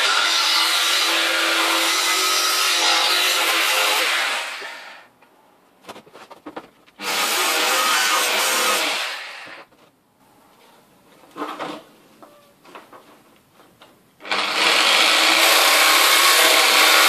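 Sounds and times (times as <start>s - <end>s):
jigsaw cutting sheet metal: 0.0s - 5.0s, 7.0s - 9.6s, 14.2s - 17.0s.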